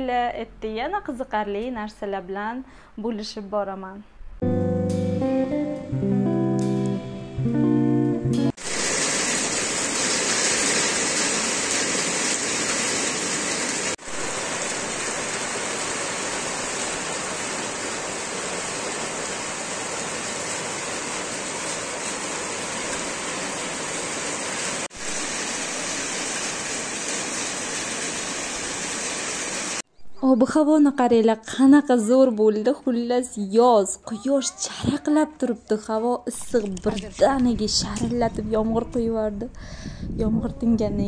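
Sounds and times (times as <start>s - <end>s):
heavy rain pouring down: 8.6s - 29.8s.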